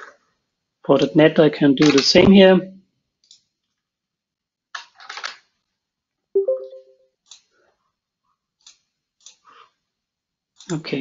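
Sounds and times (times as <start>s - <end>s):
computer mouse clicks: 3.2s - 3.8s, 8.6s - 9.4s.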